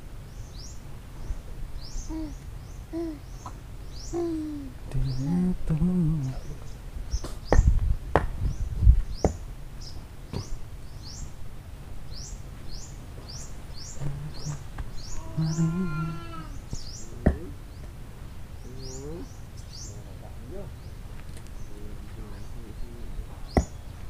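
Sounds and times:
sharp knocks and thumps: 7.2 - 9.4, 16.7 - 17.5.

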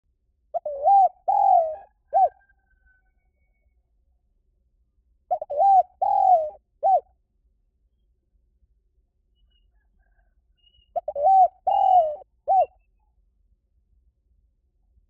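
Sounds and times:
dove cooing: 0.5 - 2.5, 5.3 - 7.1, 10.9 - 12.8.

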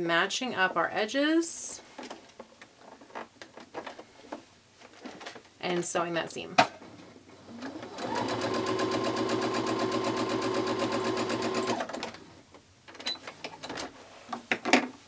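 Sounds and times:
sewing machine stitching: 7.4 - 12.3.

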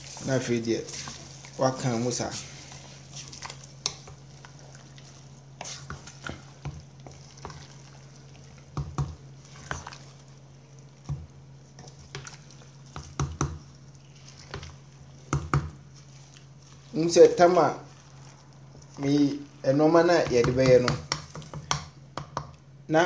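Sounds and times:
steady low hum: 0.0 - 23.0
spoon knocking and scraping pot: 3.8 - 4.3, 8.6 - 10.0, 11.0 - 13.7, 14.4 - 15.8, 20.1 - 22.6.

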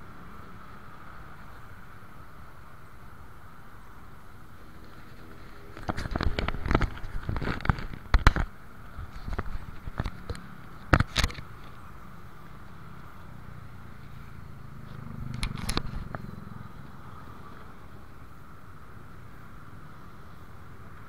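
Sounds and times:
engines idling: 0.0 - 21.0
sharp clicks: 15.2 - 16.3.

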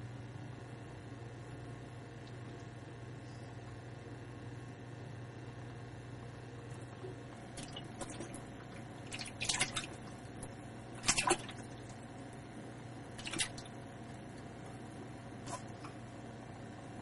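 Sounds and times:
frog splashing in water: 7.5 - 12.0, 13.2 - 13.8.

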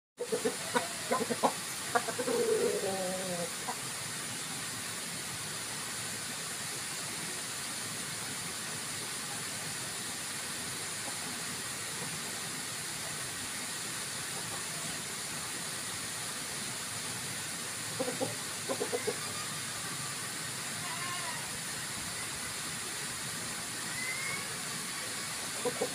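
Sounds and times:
chickens clucking: 0.2 - 3.8, 17.9 - 20.2, 25.5 - 25.9
background hiss: 0.2 - 25.9.

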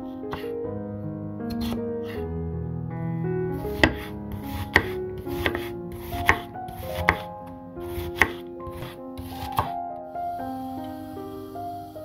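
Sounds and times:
background music: 0.0 - 12.0
knife chopping on wooden board: 3.6 - 7.3, 7.9 - 9.7.

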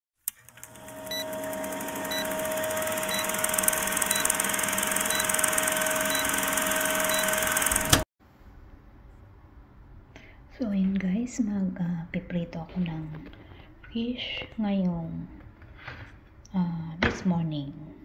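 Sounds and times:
film projector whirring and clattering: 0.2 - 8.1.

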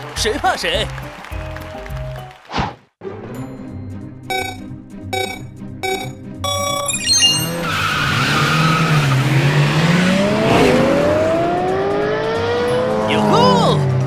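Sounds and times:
short electronic beeps: 4.3 - 7.7
race car engines revving: 7.5 - 14.0.

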